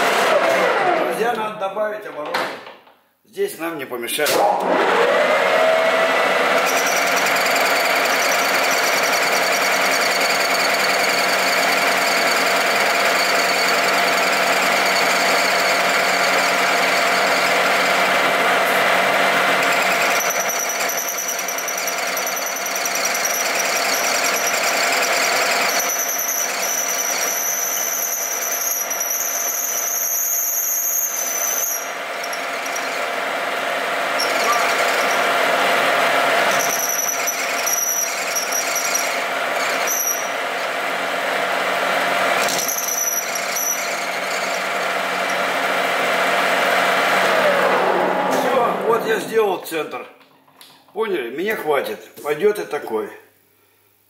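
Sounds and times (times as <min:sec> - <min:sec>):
lathe machine whine: 0:04.6 - 0:49.3
cutting tool squeal: 0:06.4 - 0:17.7, 0:19.6 - 0:33.1, 0:34.2 - 0:35.4, 0:36.5 - 0:40.4, 0:42.4 - 0:45.7
high ringing tones: 0:36.5 - 0:39.1, 0:42.6 - 0:44.6.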